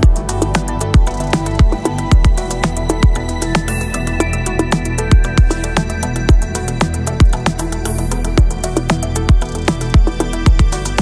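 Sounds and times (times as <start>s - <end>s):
deep kick drum: 0.0s - 3.4s, 5.1s - 5.6s, 6.3s - 6.6s, 7.2s - 7.5s, 8.4s - 8.6s, 9.3s - 10.8s.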